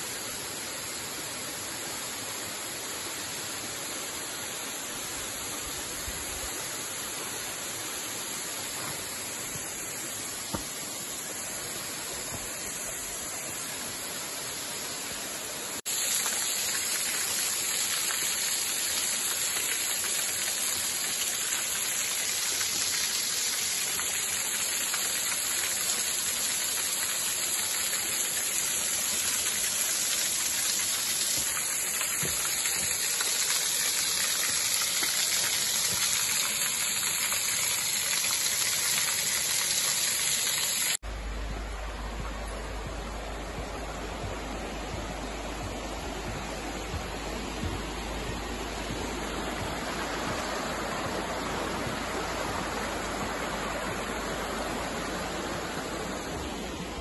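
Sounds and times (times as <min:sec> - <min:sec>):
waterfall splashing onto rocks: 0:15.8 - 0:41.0, 0:42.8 - 0:57.0.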